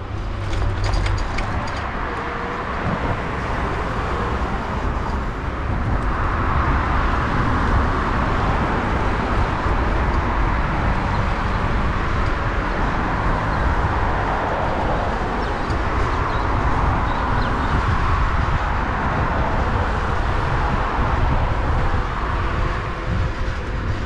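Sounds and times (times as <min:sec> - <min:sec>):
road traffic noise: 0:00.0 - 0:24.0
wind on microphone: 0:00.0 - 0:24.0.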